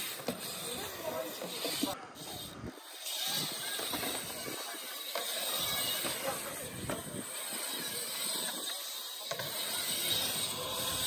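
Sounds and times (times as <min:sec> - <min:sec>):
bike tyres rolling on concrete: 0:00.0 - 0:11.0.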